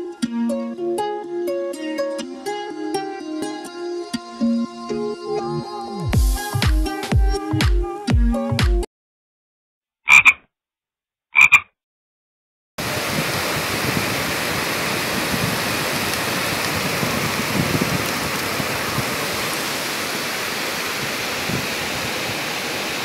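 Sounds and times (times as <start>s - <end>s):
brief pitched call: 11.4s - 11.6s
heavy rain falling: 12.8s - 23.0s.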